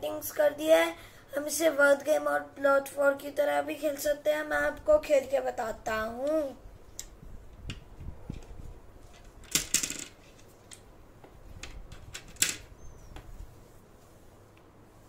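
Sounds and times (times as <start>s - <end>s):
plastic tiles clicking and clattering: 9.1s - 10.8s, 11.6s - 12.7s.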